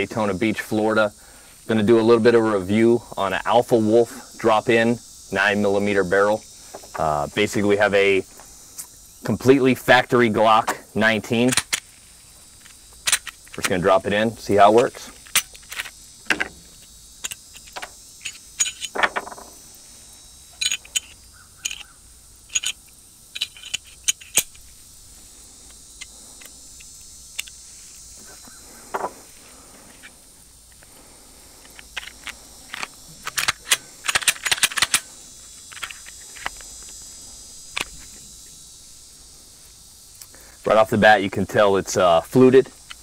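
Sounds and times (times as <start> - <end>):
pistol parts clicking and knocking: 11.4 - 11.9, 12.6 - 13.8, 15.1 - 19.6, 20.6 - 21.9, 22.5 - 24.6, 31.6 - 35.1, 35.7 - 36.7
gun parts set on wooden table: 12.6 - 13.8, 14.8 - 19.6, 20.5 - 21.9, 22.5 - 22.8, 23.4 - 24.6, 28.2 - 30.1, 31.6 - 36.9.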